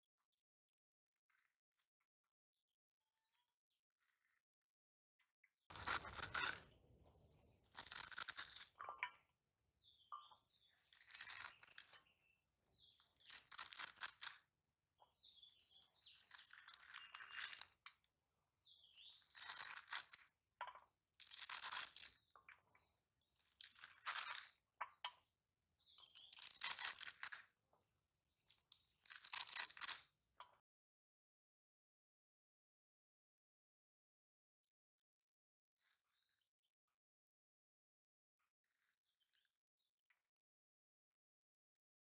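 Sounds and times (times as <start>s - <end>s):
blade slicing spinach: 5.7s - 6.8s, 7.6s - 8.7s.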